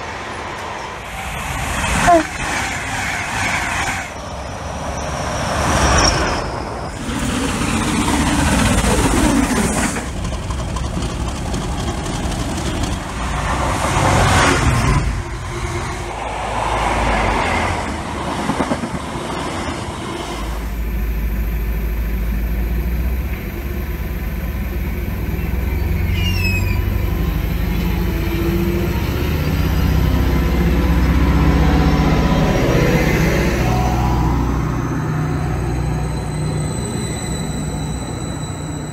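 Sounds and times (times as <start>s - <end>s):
diesel train rumble: 0.0s - 38.9s
other train noise: 0.0s - 38.9s
brief high falling sound: 33.2s - 37.0s.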